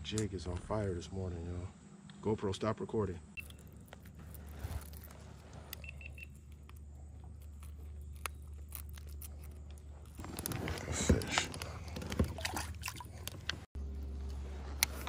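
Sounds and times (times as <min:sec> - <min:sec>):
low steady hum: 0:00.0 - 0:15.0
rustling: 0:03.5 - 0:12.6.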